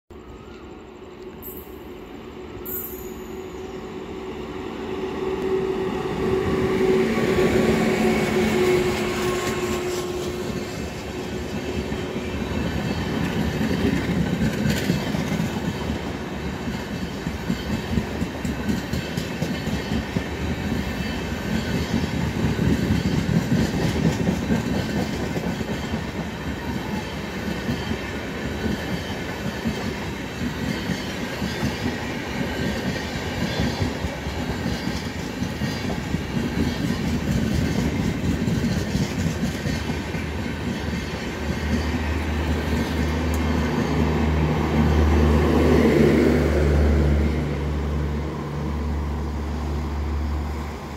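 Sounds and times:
train wheels rumbling on rails: 1.4s - 50.9s
clickety-clack over rail joints: 8.3s - 46.9s.

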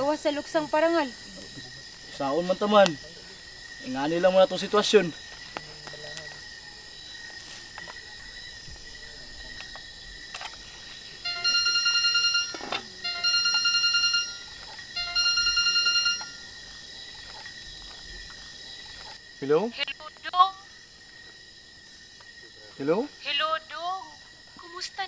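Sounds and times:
crickets chirping: 0.0s - 25.0s
phone ringing warbling ringtone: 11.2s - 16.5s.

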